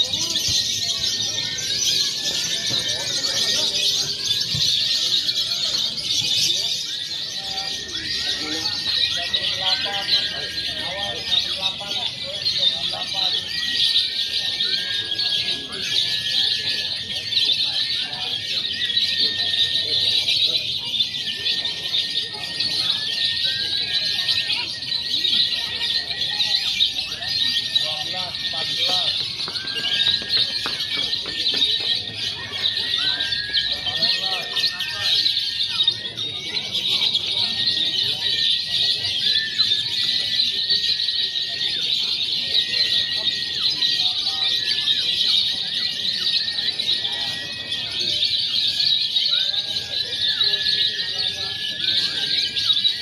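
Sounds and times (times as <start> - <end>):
lovebirds chattering and trilling: 0.0 - 53.0.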